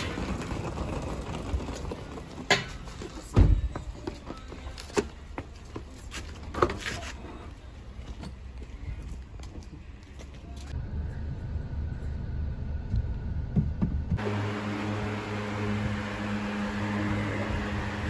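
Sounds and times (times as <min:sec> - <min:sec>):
suitcases knocking and clicking: 0:00.0 - 0:05.1.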